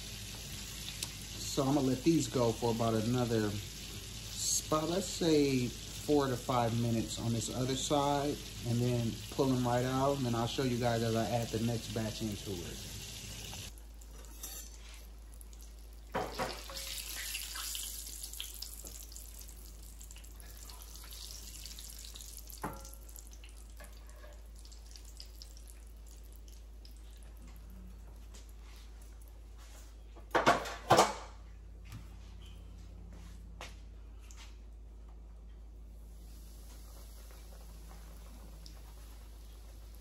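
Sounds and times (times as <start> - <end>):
fish frying in hot oil: 0.0 - 27.4, 36.1 - 40.0
kitchenware clattering: 16.1 - 17.0, 30.3 - 31.3.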